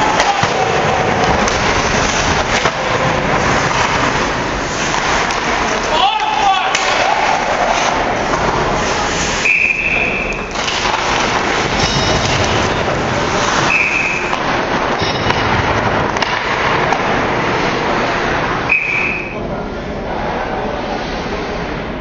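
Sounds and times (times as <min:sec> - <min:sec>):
crowd cheering and shouting: 0:00.0 - 0:02.0, 0:05.8 - 0:08.3
shrill steady tone: 0:18.7 - 0:19.4.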